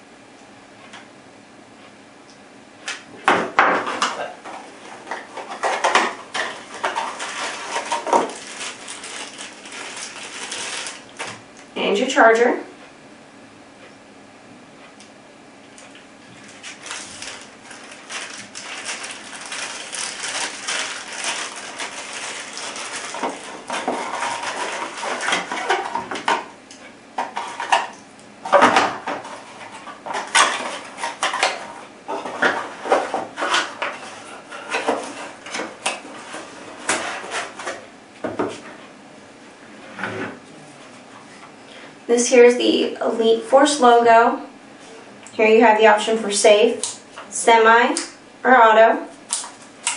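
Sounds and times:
cardboard rustling: 0:05.0 - 0:11.4, 0:16.3 - 0:26.2.

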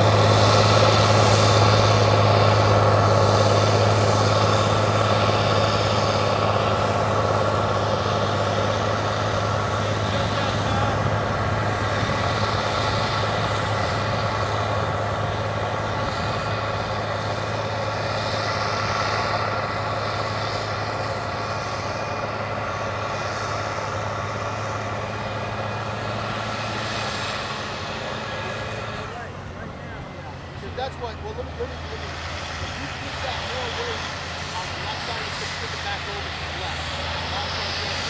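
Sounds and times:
harrow rushing through soil: 0:00.0 - 0:38.0
tractor diesel engine under load: 0:00.0 - 0:38.0.

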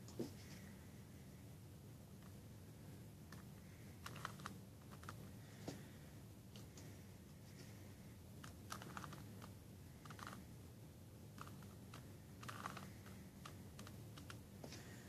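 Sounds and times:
puzzle cube layers clicking: 0:08.6 - 0:09.2.

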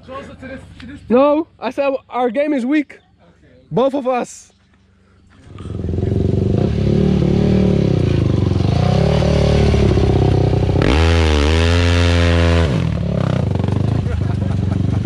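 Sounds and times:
quad bike engine revving: 0:05.4 - 0:15.0.

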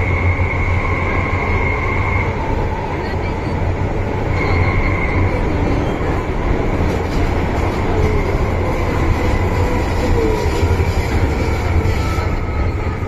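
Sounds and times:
train wheels rumbling: 0:00.0 - 0:13.0.

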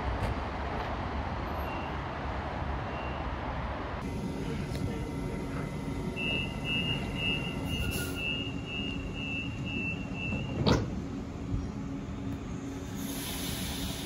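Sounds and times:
low train hum: 0:00.0 - 0:14.0
train door warning beeps: 0:04.2 - 0:10.9.

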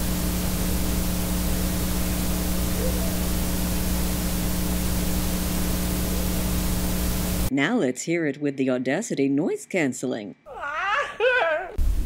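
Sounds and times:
low hum: 0:00.0 - 0:07.5
tape hiss: 0:00.0 - 0:07.6.

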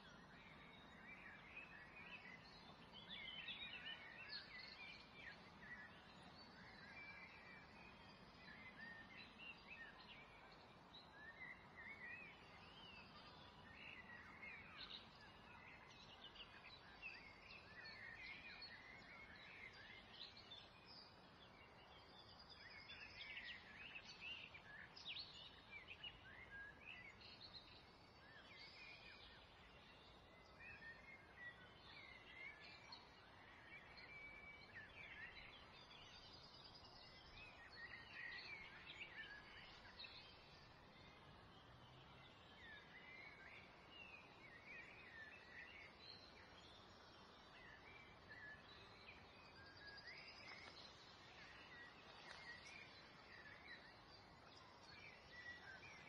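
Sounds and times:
low steady hiss: 0:00.0 - 0:56.0
birds chirping: 0:34.6 - 0:56.0.

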